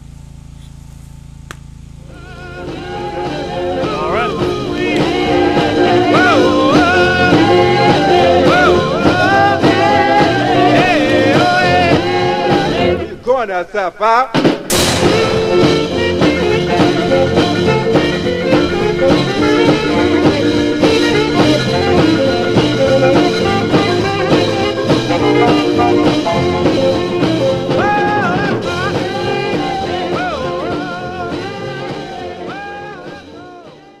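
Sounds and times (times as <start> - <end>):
background music with steady beat: 14.4 - 34.0
sliding melody line: 14.7 - 32.3.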